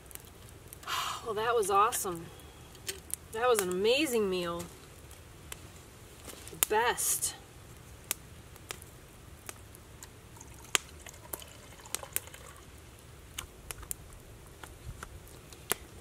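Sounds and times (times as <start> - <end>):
campfire crackling: 0.0 - 16.0
low wind rumble: 7.4 - 16.0.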